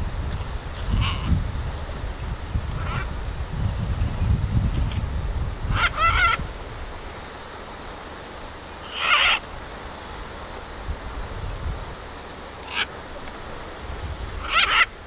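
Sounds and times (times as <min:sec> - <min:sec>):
wind rumble on microphone: 0:00.0 - 0:07.7, 0:09.0 - 0:15.0
macaw squawking: 0:05.7 - 0:06.4, 0:08.8 - 0:09.5, 0:12.6 - 0:13.0, 0:14.4 - 0:15.0.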